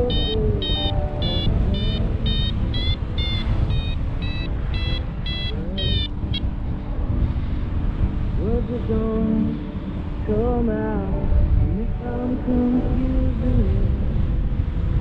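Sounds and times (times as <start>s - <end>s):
variometer beeping: 0.0s - 6.5s
faint music: 0.0s - 15.0s
wind rumbling on microphone: 0.0s - 15.0s.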